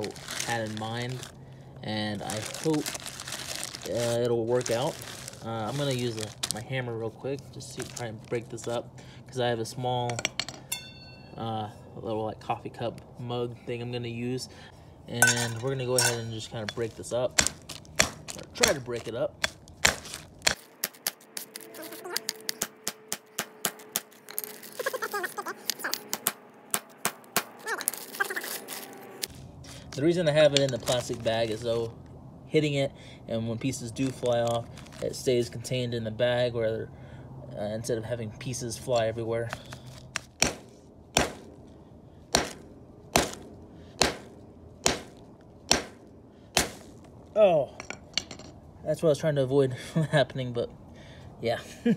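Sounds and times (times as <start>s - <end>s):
hammer striking metal in plastic bag: 0.0s - 1.3s, 2.2s - 6.6s, 15.2s - 25.0s
hammer striking metal: 10.1s - 11.4s, 22.2s - 24.4s.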